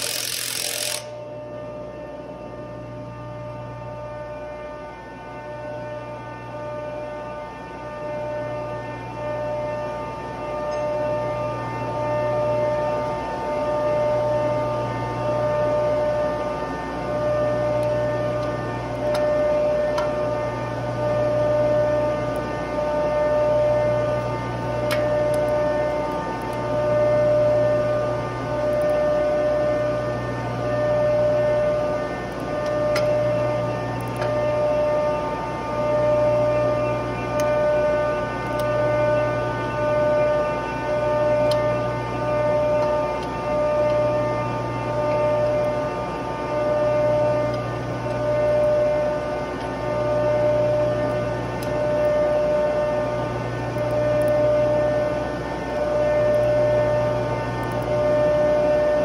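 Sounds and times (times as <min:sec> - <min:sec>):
wrench clicking on bolts: 0:00.0 - 0:01.1
industrial machinery humming: 0:00.0 - 0:59.0.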